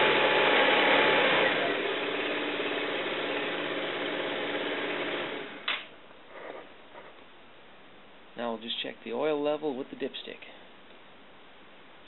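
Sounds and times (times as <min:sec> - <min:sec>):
sharp click: 0:05.6 - 0:06.0.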